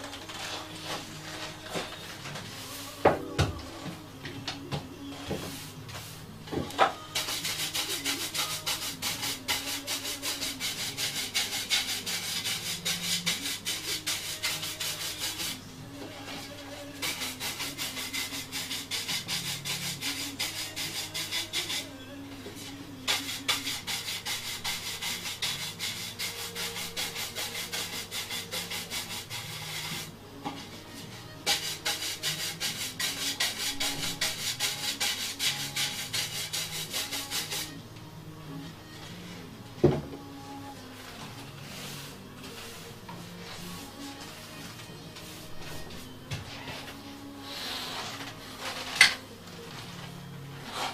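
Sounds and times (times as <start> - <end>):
hand sanding wood: 7.1 - 15.6, 17.0 - 21.9, 22.6 - 30.1, 31.4 - 37.8, 41.6 - 44.4.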